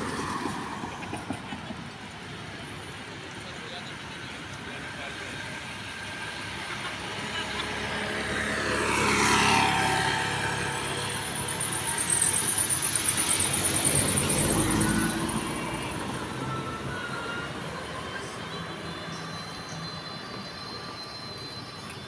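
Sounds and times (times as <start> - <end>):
pulsing engine: 4.2 - 21.9
vehicle passing with whine: 7.2 - 18.4.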